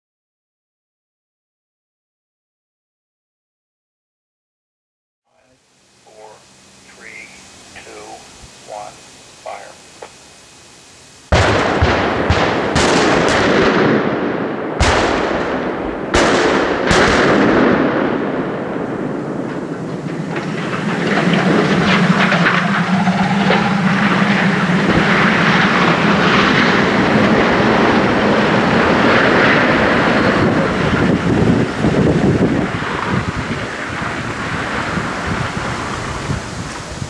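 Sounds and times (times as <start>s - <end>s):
loud rumbling: 5.3s - 37.0s
demolition blasts echoing: 11.3s - 37.0s.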